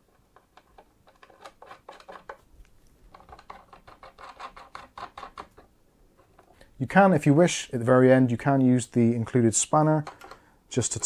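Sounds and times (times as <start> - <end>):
faint clicks and scrapes of screwing: 0.0 - 6.8, 9.9 - 11.0.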